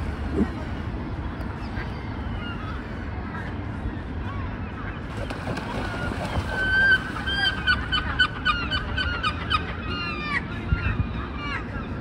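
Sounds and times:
waterbirds nasal calls: 4.2 - 11.9
water splashing: 5.1 - 7.7.

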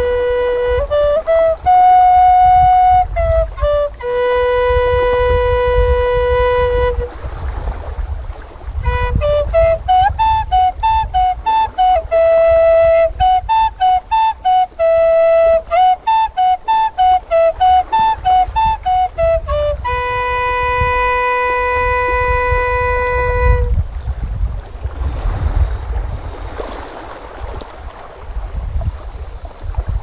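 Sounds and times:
flute melody: 0.0 - 7.2, 8.8 - 23.8.

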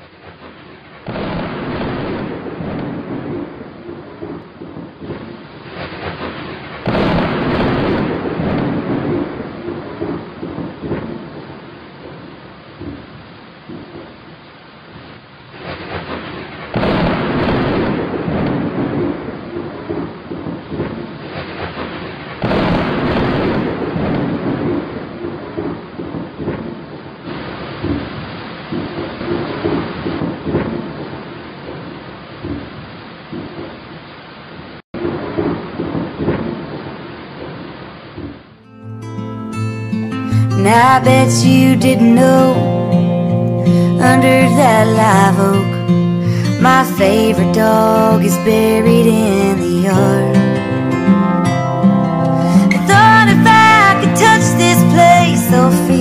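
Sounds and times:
rain: 0.0 - 38.6
rolling thunder: 1.1 - 5.4, 6.8 - 11.4, 16.8 - 21.0, 22.4 - 26.8
thunder clap: 1.1 - 11.4, 16.0 - 21.0, 22.4 - 26.8.

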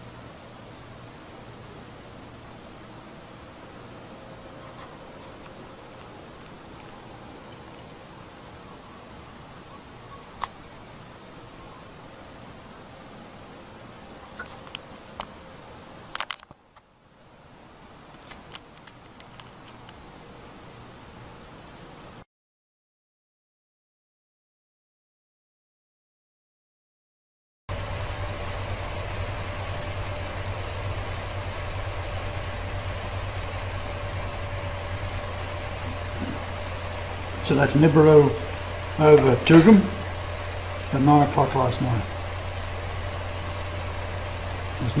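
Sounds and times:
microphone hiss: 0.0 - 22.2, 27.7 - 45.0
faint constant whine: 0.0 - 22.3, 27.7 - 45.0
low mechanical hum: 0.0 - 22.3, 27.7 - 45.0
even hiss: 27.7 - 45.0.

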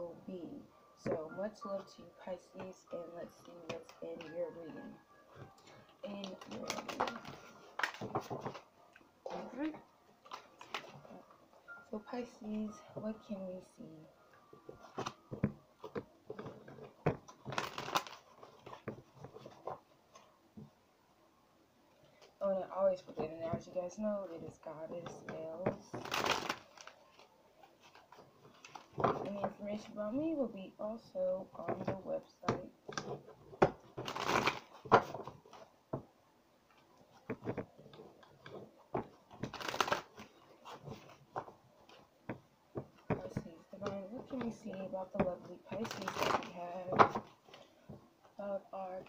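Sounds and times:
cards being shuffled: 6.1 - 8.7, 10.2 - 11.2, 14.7 - 20.2, 25.1 - 29.2, 33.0 - 35.7, 36.8 - 42.1, 45.2 - 47.7.

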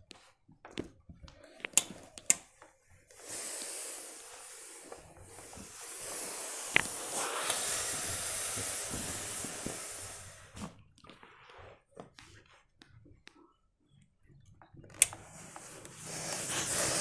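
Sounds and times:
steam iron hissing: 3.1 - 10.7, 15.0 - 17.0.

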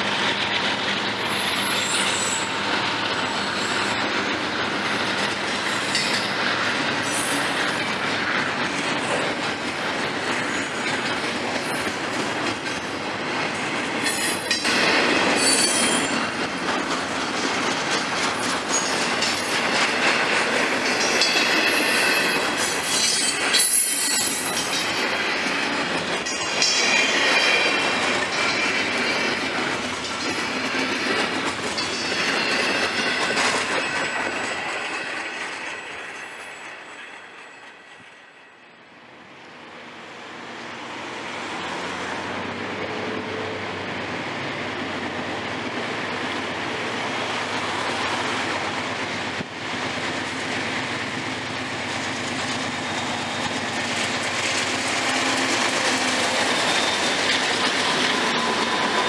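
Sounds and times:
train wheels squealing: 0.0 - 12.9, 13.6 - 16.6, 18.3 - 39.0, 52.3 - 59.0
rumble of freight cars: 0.0 - 59.0.

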